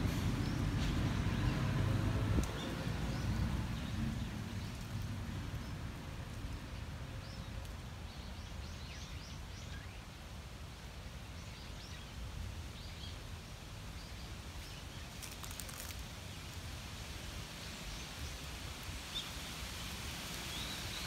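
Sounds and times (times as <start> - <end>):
wind rumble on microphone: 0.0 - 13.4
crackling rustle: 0.6 - 21.0.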